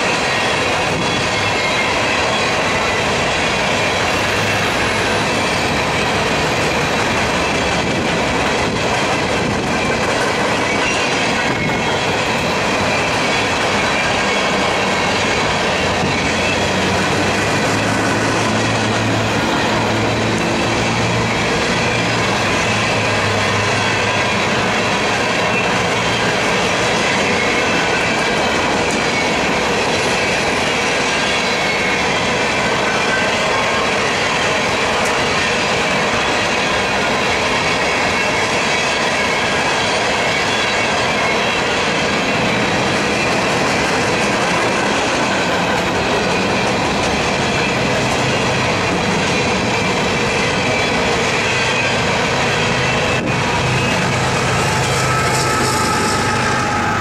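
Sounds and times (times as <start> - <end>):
diesel locomotive drone: 0.0 - 57.0
train wheels clattering on rails: 0.0 - 57.0
faint wheel squeal: 53.8 - 57.0.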